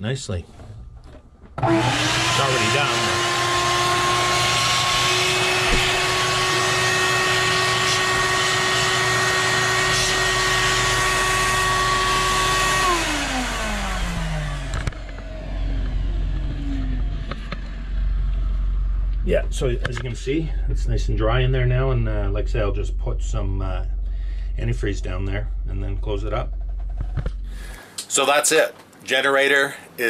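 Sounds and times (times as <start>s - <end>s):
shop vacuum whining: 0.5s - 20.5s
low rumble: 13.7s - 27.6s.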